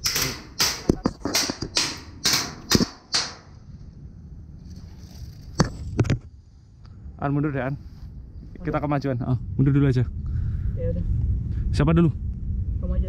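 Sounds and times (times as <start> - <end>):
airsoft rifle shots: 0.0 - 3.6.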